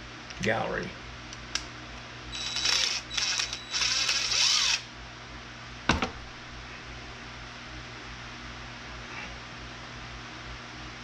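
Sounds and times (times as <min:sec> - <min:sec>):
drill motor whine: 0:02.3 - 0:04.9.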